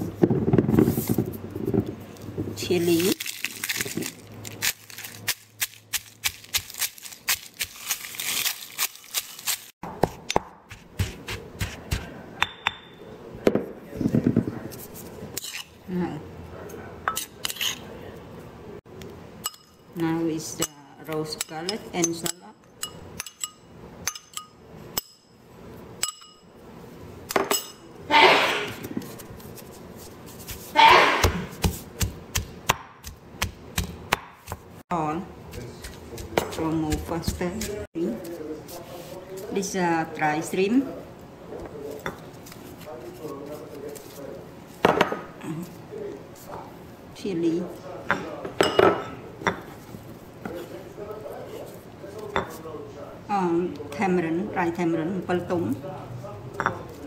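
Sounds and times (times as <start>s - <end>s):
pestle pounding in stone mortar: 9.1s - 12.9s, 30.4s - 34.7s, 35.4s - 37.9s
metal spoon clinking glass bowl: 20.6s - 25.3s, 26.0s - 26.5s.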